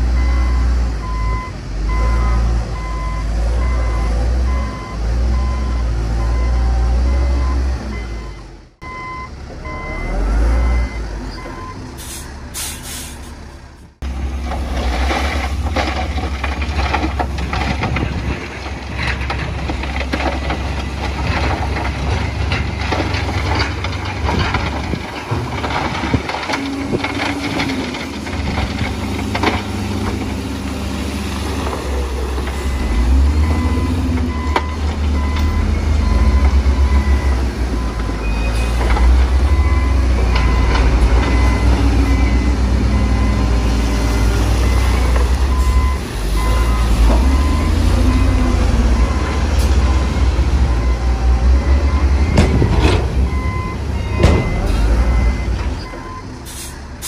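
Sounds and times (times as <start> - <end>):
heavy diesel machines rumbling: 0.0 - 57.0
reversing alarm beeping: 0.2 - 11.8, 32.8 - 56.3
rock being dumped: 14.0 - 36.9.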